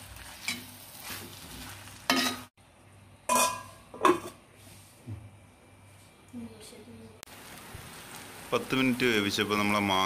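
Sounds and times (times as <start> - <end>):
metal spatula clanking on pan: 3.3 - 4.3.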